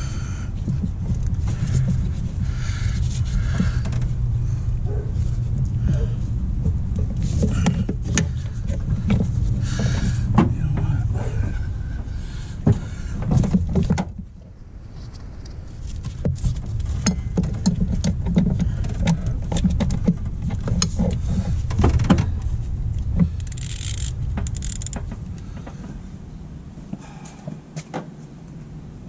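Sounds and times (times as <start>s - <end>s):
low rumble: 0.0s - 27.2s
light metal clicks and clatter: 15.4s - 25.8s.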